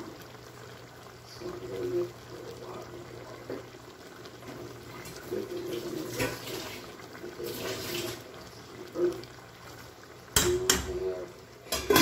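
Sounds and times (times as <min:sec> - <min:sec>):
sauce simmering and bubbling: 0:00.0 - 0:12.0
metal spoon knocking pan: 0:10.4 - 0:11.0.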